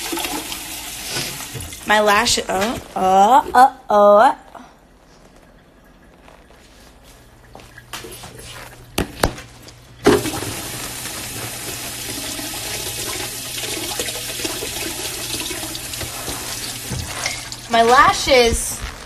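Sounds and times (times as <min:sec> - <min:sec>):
running water rushing: 0:10.1 - 0:18.5.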